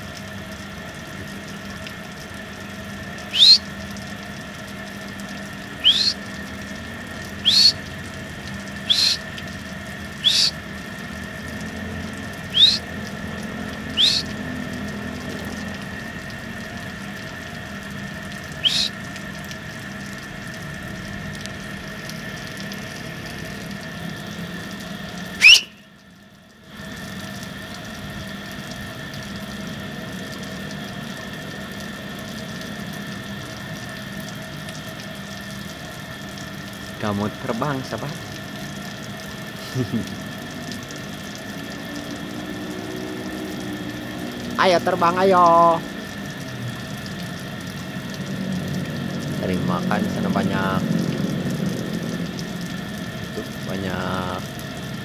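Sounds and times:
outdoor hiss and hum: 0.0s - 55.0s
rising sharp whistles: 3.3s - 3.6s, 5.8s - 6.2s, 7.4s - 7.8s, 8.9s - 9.2s, 10.2s - 10.6s, 12.5s - 12.9s, 13.9s - 14.3s, 18.6s - 18.9s, 25.4s - 25.8s.

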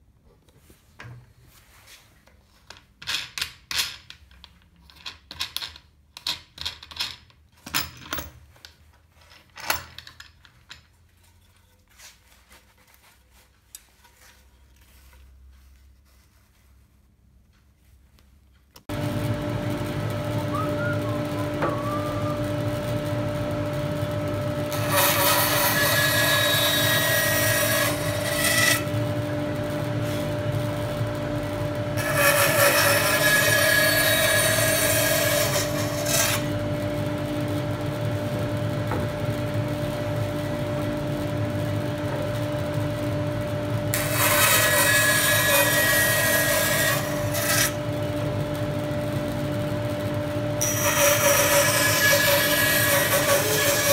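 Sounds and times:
woodworking machine humming: 18.9s - 53.9s
cutter cutting wood: 20.5s - 22.5s, 24.7s - 29.4s, 43.9s - 47.8s, 50.6s - 53.9s.

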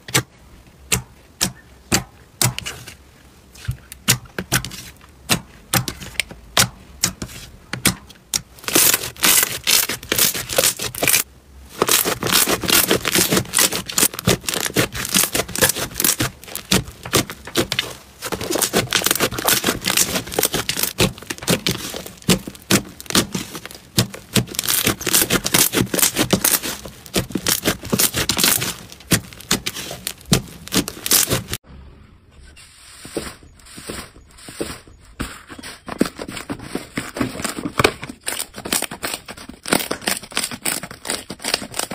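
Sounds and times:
slime squishing and popping: 8.3s - 11.2s, 11.8s - 31.6s.

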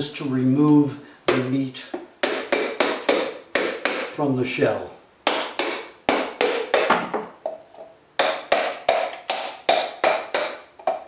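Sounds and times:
hammer knocking coconut shell: 2.2s - 4.2s, 5.2s - 7.3s, 8.2s - 11.0s.

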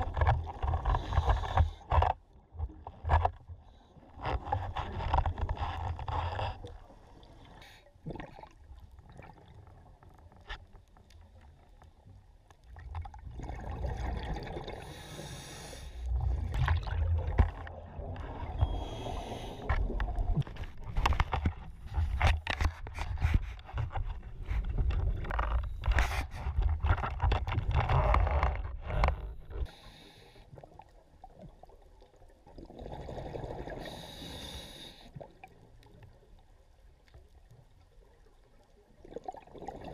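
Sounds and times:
exhaled bubbles rumbling: 12.7s - 15.0s, 16.1s - 22.2s, 31.1s - 33.8s, 38.8s - 39.9s
diver breathing underwater: 14.6s - 16.6s, 18.4s - 20.0s, 33.1s - 35.2s.

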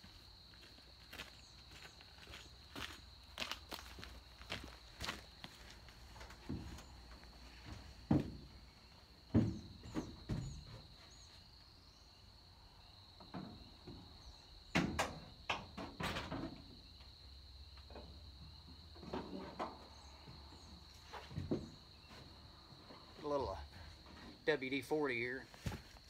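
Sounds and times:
insect trill: 6.5s - 26.0s
metal knocks and clanks: 9.3s - 10.8s.

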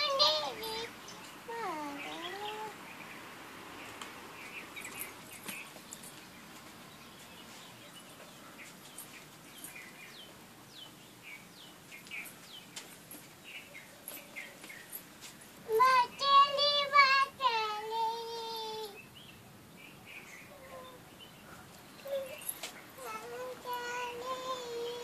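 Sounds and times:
toddler girl singing: 0.0s - 2.8s, 15.6s - 19.0s, 22.0s - 25.0s
faint bird chirps: 18.8s - 25.0s.

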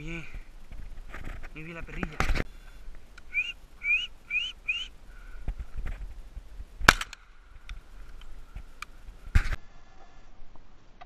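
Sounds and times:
rising whistled calls: 3.2s - 5.4s
shotgun shot: 6.8s - 7.2s.

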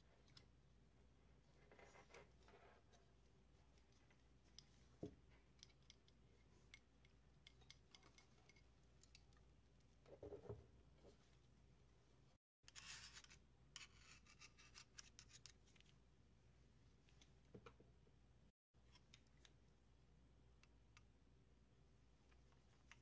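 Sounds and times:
handling clicks and rubbing on metal: 1.5s - 10.1s.

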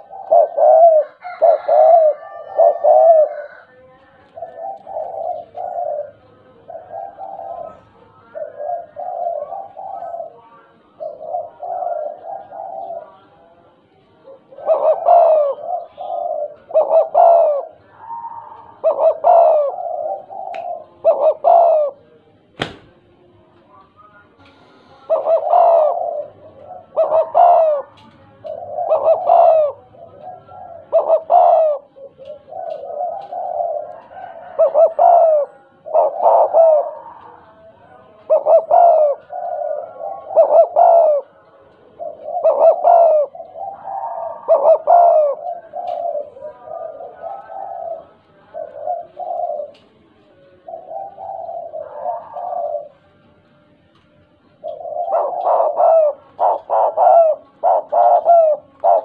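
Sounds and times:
dove cooing: 0.0s - 59.0s.

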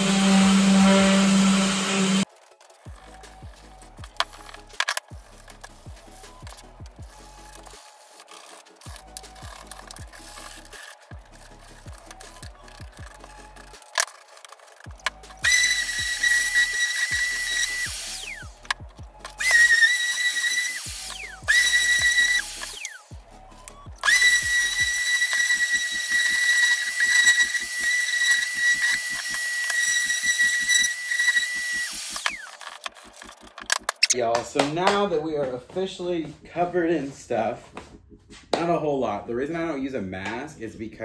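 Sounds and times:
orbital sander whining on wood: 0.0s - 2.3s, 15.4s - 18.5s, 19.4s - 23.1s, 24.0s - 32.6s
background music with steady beat: 0.0s - 41.0s.

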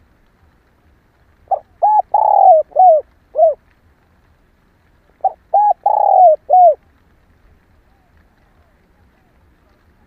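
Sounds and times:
dove cooing: 1.5s - 3.6s, 5.2s - 6.8s.

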